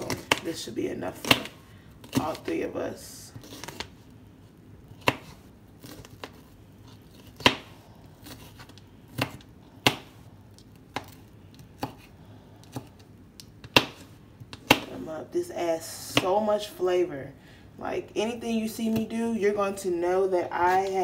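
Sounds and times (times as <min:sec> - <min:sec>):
knife chopping on plastic cutting board: 0:01.2 - 0:02.4, 0:05.0 - 0:06.4, 0:07.2 - 0:10.2, 0:10.9 - 0:13.0, 0:13.6 - 0:14.9.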